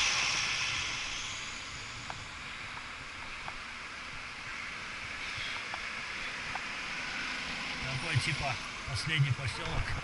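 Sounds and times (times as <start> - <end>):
wind and road noise: 0.0 - 10.0
faint ticks: 5.3 - 6.7.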